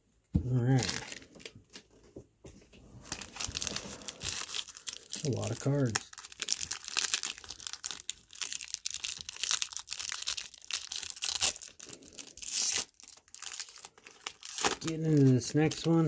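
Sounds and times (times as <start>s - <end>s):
wrapper crinkling and tearing: 0.6s - 1.9s, 3.0s - 16.0s
cards rustling: 0.6s - 2.1s, 2.9s - 16.0s.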